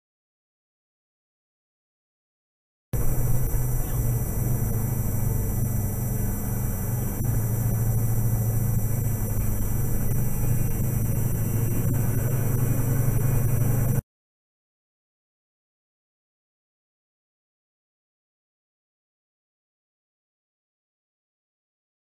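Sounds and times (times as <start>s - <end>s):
vehicle engine and road rumble: 3.0s - 14.0s.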